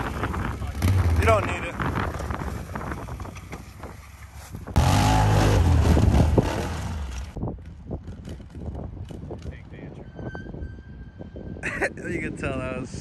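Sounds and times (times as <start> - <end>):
quad engine revving: 0.6 - 1.5, 4.8 - 7.4.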